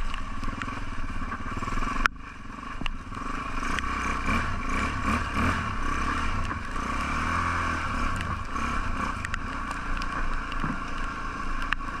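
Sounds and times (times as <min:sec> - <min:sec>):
motorcycle engine: 0:00.0 - 0:12.0
sharp clicks: 0:08.1 - 0:11.8.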